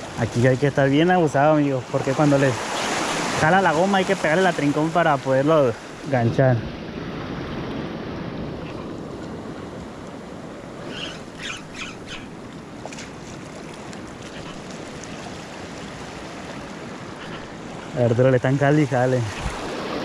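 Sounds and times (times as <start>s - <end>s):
ocean surf washing: 0.0s - 20.0s
wind rumbling on microphone: 5.8s - 20.0s.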